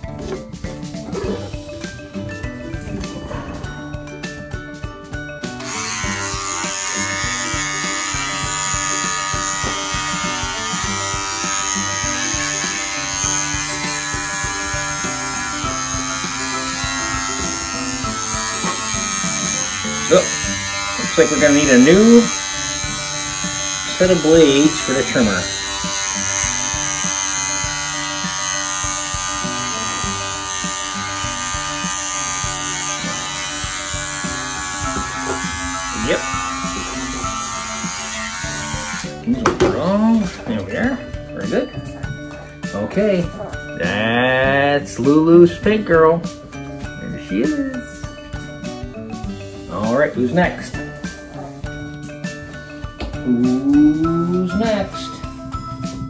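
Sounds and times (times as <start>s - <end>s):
background music with steady beat: 0.0s - 56.0s
electric trimmer buzzing: 1.2s - 40.6s
electric clippers motor hum: 1.5s - 39.8s.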